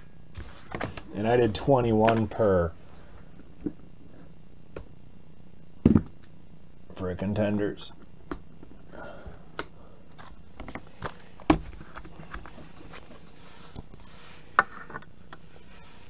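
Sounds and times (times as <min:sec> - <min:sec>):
cardboard and paper rustling: 0:10.2 - 0:16.0.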